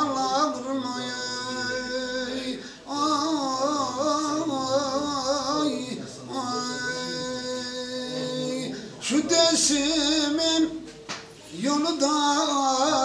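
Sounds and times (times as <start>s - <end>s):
man singing unaccompanied: 0.0s - 10.9s, 11.5s - 13.0s.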